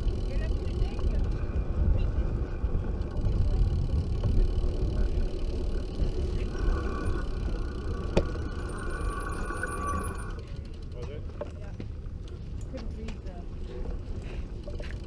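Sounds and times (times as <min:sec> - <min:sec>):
wind buffeting microphone: 0:00.0 - 0:08.9
faint steady whine: 0:03.0 - 0:10.9.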